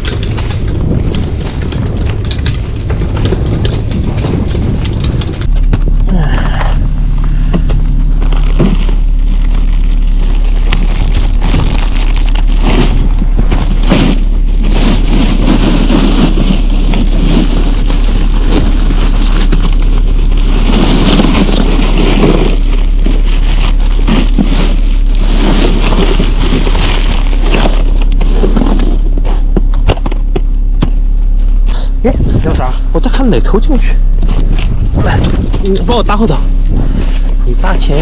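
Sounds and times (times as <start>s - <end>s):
plastic bags crinkling: 0.0s - 30.3s
ice shifting: 0.0s - 30.5s
boat engine droning: 0.0s - 38.0s.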